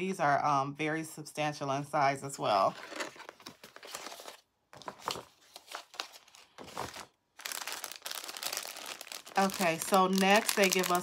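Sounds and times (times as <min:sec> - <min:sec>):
plastic packaging crinkling: 0:02.8 - 0:11.0.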